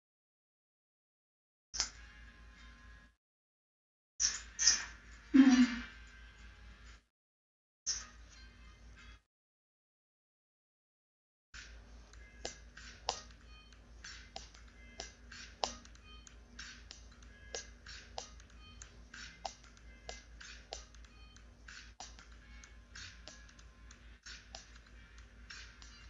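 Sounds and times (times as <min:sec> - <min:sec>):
faint music: 0:01.8 - 0:03.2, 0:04.2 - 0:07.0, 0:07.9 - 0:09.2, 0:11.6 - 0:26.0.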